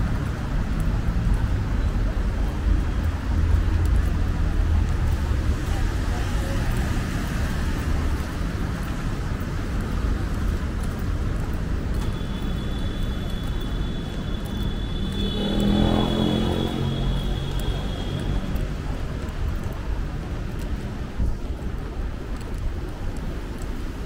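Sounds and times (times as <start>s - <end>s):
road traffic rumble: 0.0s - 24.0s
vehicle passing close: 15.4s - 17.1s.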